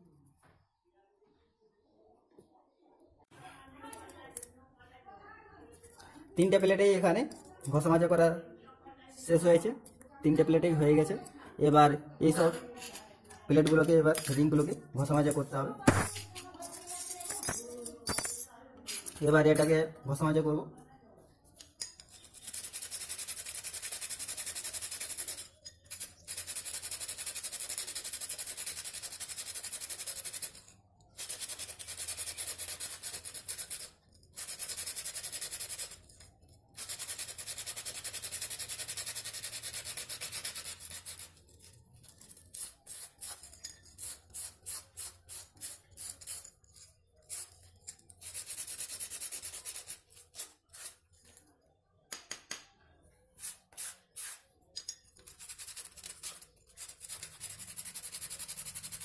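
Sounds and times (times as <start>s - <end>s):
sandpaper rasping on rusty steel: 31.2s - 36.0s, 36.8s - 41.4s, 42.1s - 51.0s, 53.4s - 54.5s.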